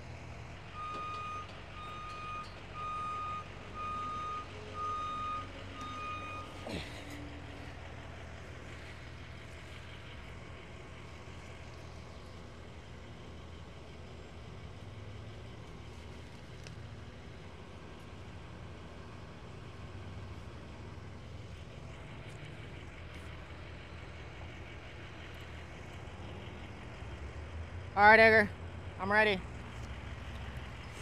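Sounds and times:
truck engine running: 0:00.0 - 0:31.0
backup alarm beeping: 0:00.7 - 0:06.6.

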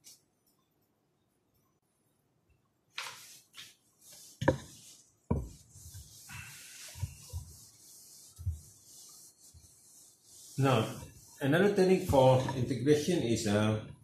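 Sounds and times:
eraser scrubbing whiteboard: 0:03.0 - 0:13.1.

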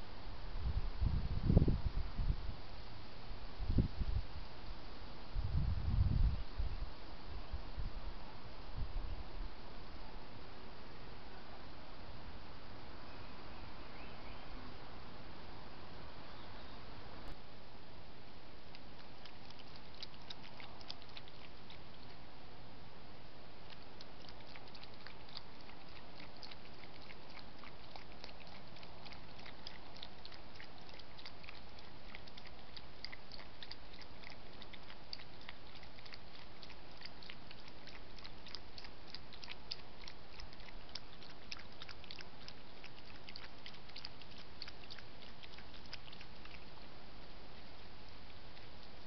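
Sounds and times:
fox mouth clicks while feeding: 0:18.6 - 0:22.3, 0:23.6 - 0:49.0.

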